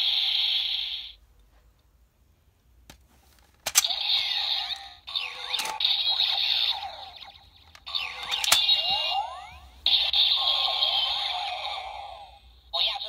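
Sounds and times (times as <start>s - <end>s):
toy belt click: 7.7s - 8.8s.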